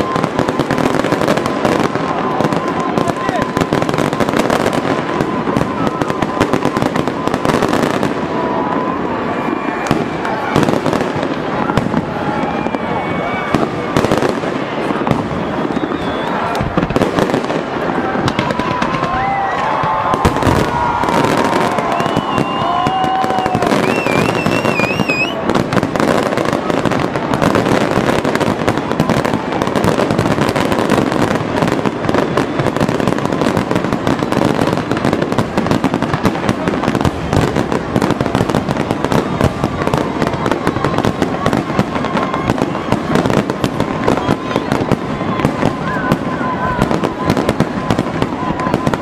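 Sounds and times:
firework whistles: 0.0 - 49.0
fireworks crackling and banging: 0.0 - 49.0.

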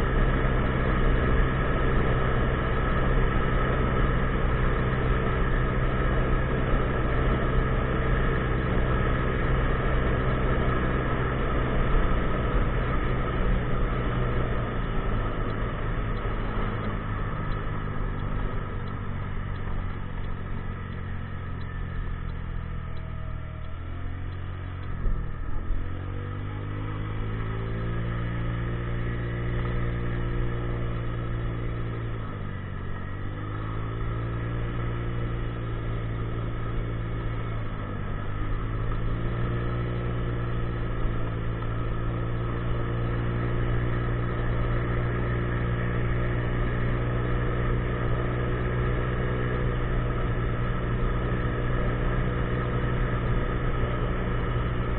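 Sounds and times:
scooter engine running: 0.0 - 54.9.

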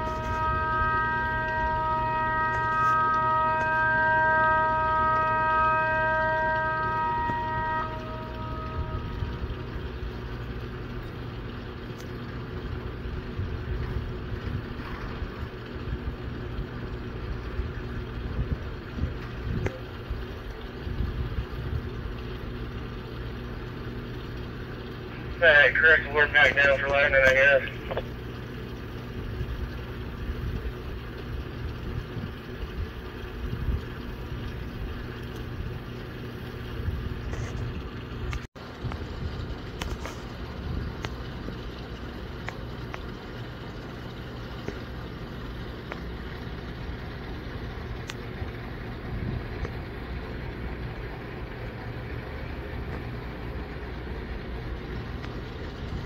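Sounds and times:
warning siren: 0.0 - 38.5
faint steady hum: 0.0 - 56.0
wind buffeting microphone: 13.1 - 22.2, 29.1 - 38.1, 49.0 - 49.8.

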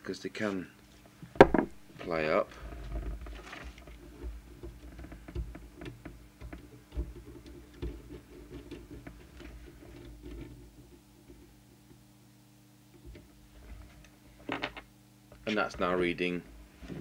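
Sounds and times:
low steady hum: 0.0 - 17.0
small clicks and scratches: 1.9 - 12.0.

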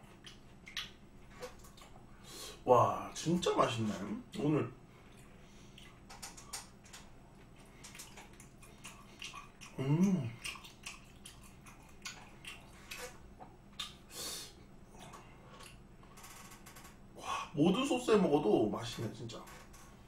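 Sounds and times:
wet chewing and lip-smacking: 0.0 - 2.1, 5.0 - 14.1, 14.9 - 16.2
person humming: 9.7 - 10.4.

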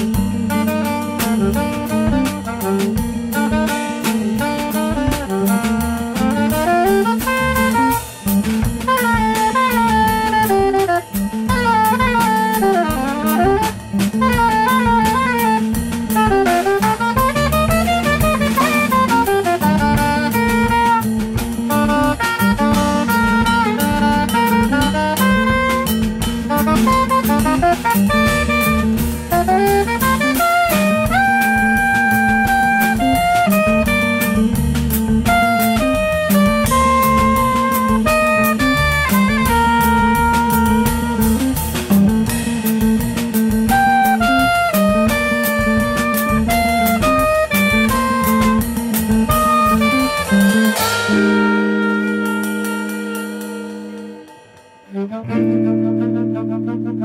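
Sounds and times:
drum kit with cymbals: 0.0 - 57.0
electric bass: 0.0 - 57.0
guitar: 0.0 - 57.0
saxophone solo: 0.0 - 57.0.

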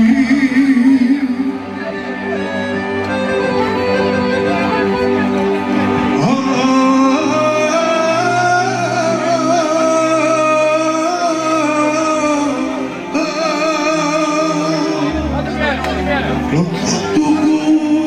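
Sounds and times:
man singing into microphone: 0.0 - 2.4, 6.0 - 18.0
accordion: 0.0 - 18.0.

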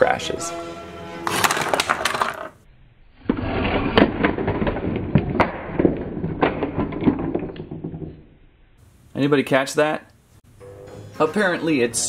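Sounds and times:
slowed plastic toy clatter: 1.3 - 2.6, 3.3 - 8.4.

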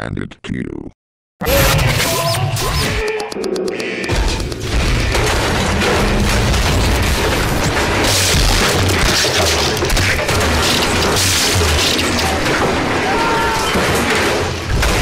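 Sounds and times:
booming din: 4.0 - 9.2.

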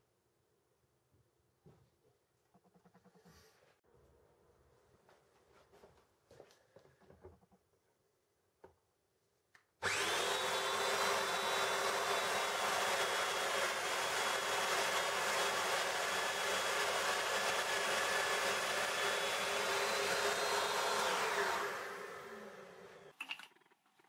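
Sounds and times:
power joiner motor whine: 9.8 - 23.1.

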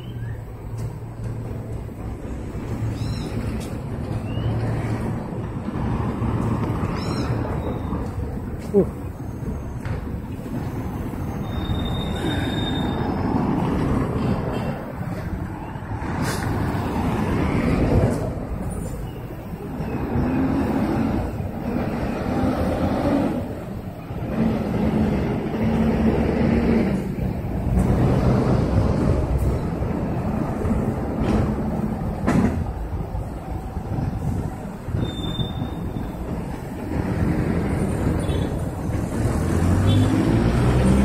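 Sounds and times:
cars and buses passing: 0.0 - 41.0
heavy engines humming: 0.0 - 41.0.

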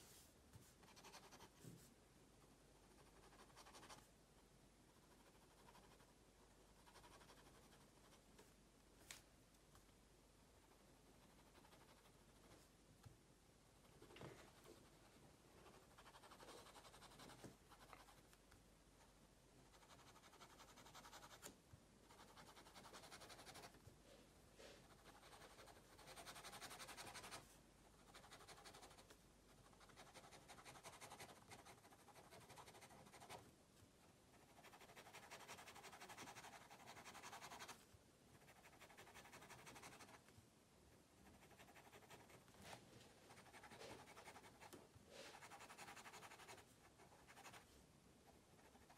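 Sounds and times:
pen scratching on paper: 28.1 - 33.4, 34.4 - 37.8, 38.4 - 40.2, 43.3 - 47.6.

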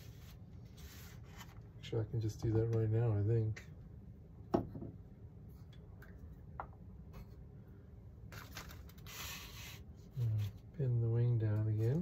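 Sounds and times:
rustling scrapes: 0.0 - 1.6.

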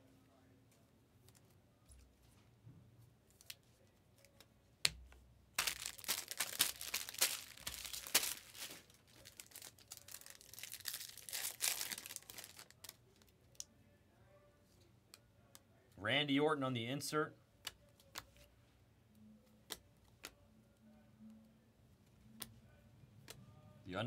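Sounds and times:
wrapper ripping and crinkling: 5.6 - 13.0.

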